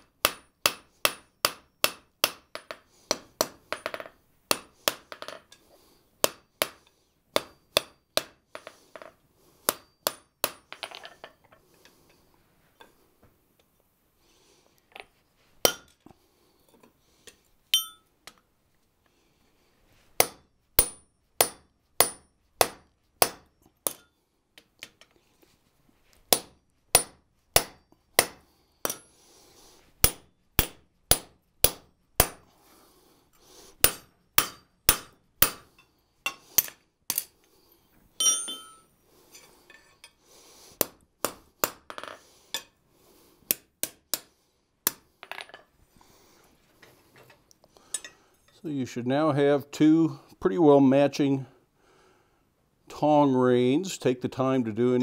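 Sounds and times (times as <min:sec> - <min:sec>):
hammer striking steel on anvil: 0:00.0 - 0:05.5, 0:06.2 - 0:08.7, 0:09.7 - 0:11.0, 0:15.6 - 0:16.0, 0:17.7 - 0:18.1, 0:20.2 - 0:24.1, 0:26.3 - 0:29.1, 0:30.0 - 0:32.5, 0:33.8 - 0:37.3, 0:38.2 - 0:38.9, 0:43.5 - 0:45.0
ringing metal clinks: 0:17.7 - 0:18.1, 0:38.2 - 0:38.9.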